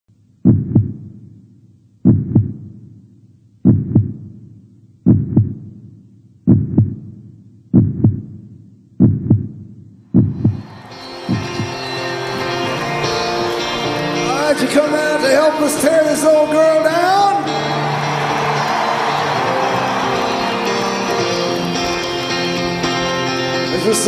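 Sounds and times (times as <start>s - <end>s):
heartbeat thumps: 0.4s - 1.3s, 2.0s - 2.8s, 3.6s - 11.8s.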